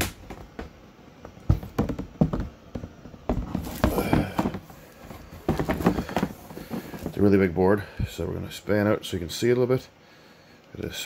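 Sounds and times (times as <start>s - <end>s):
cardboard board knocking and rustling: 0.0s - 7.2s.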